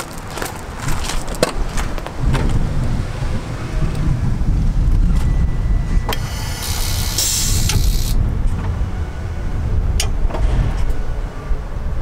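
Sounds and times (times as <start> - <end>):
footsteps crunching on gravel: 0.0 - 2.6.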